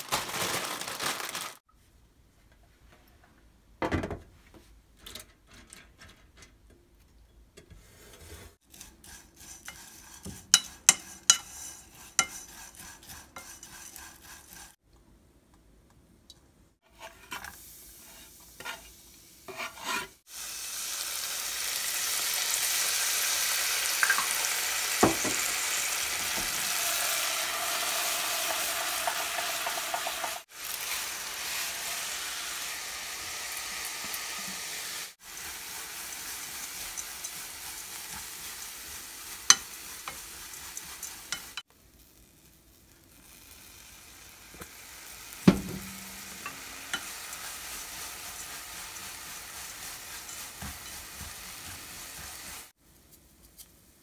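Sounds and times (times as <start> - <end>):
food sizzling in a pan: 8.6 - 14.8, 16.8 - 52.8.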